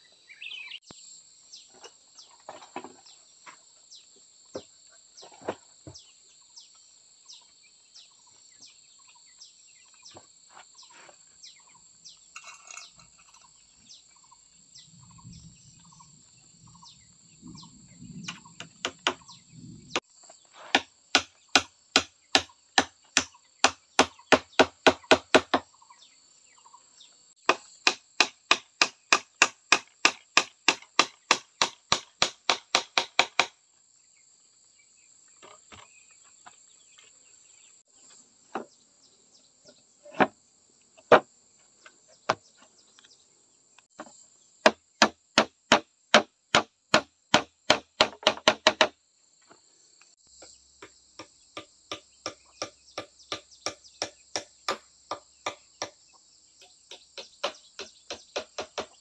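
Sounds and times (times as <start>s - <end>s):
hammer blows on bamboo and wood: 18.2s - 25.8s, 27.4s - 33.6s, 40.0s - 40.4s, 41.0s - 42.7s, 43.9s - 49.0s, 50.4s - 59.0s.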